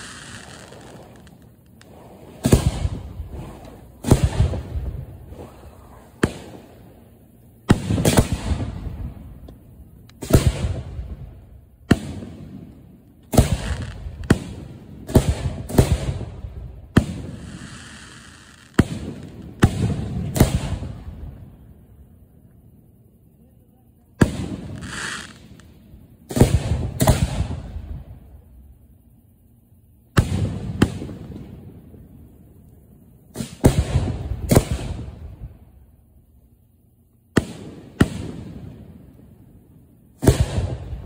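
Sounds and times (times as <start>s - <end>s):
firework bangs with crackle: 0.0s - 6.8s, 7.6s - 9.6s, 10.2s - 21.4s, 24.2s - 28.4s, 30.1s - 32.1s, 33.3s - 35.8s, 37.3s - 39.1s, 40.1s - 41.0s.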